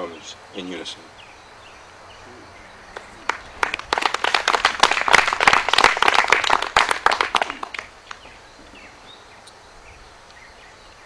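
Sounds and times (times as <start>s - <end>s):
faint bird chirps: 0.0s - 3.6s, 7.8s - 11.0s
audience applauding: 2.9s - 8.4s.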